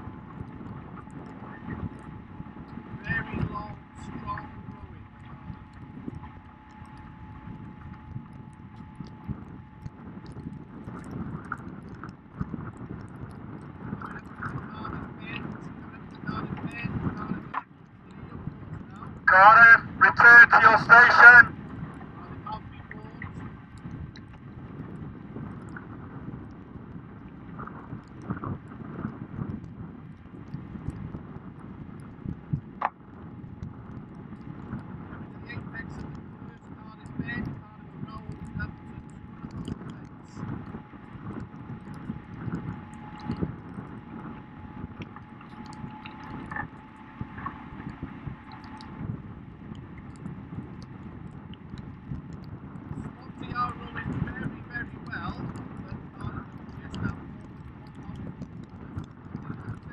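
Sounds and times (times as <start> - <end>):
boat motor whine: 0.0 - 59.8
wind and water noise: 0.0 - 59.9
water slapping hull: 32.1 - 59.9.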